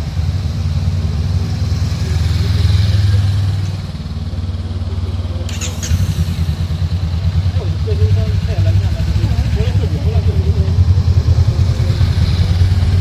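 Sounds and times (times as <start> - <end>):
motorcycle engine passing by: 0.0 - 13.0.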